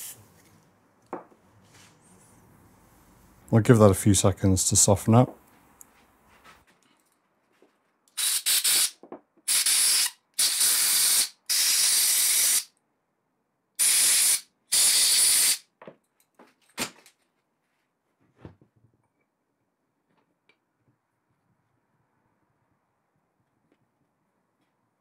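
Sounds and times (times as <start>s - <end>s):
compressed air hissing blasts: 0.0s - 0.3s, 8.2s - 12.7s, 13.8s - 15.6s.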